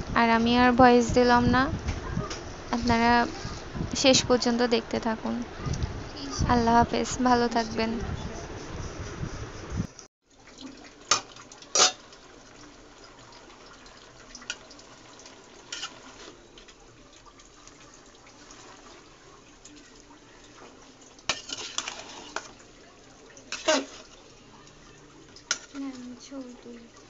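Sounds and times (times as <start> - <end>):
faint sizzle: 10.3 - 27.0
metal spatula scraping metal pot: 11.7 - 12.0, 15.6 - 16.4, 21.3 - 22.6, 23.5 - 24.2, 25.5 - 25.8.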